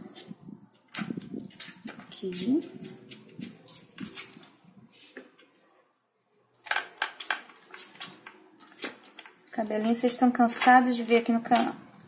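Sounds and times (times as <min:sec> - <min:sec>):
fingers rustling on soft clay: 0:00.0 - 0:05.4.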